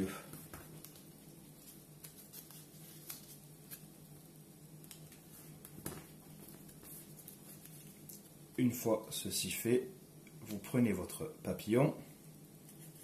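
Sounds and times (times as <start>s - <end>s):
low steady hum: 0.0s - 13.0s
paper being folded: 0.8s - 4.1s.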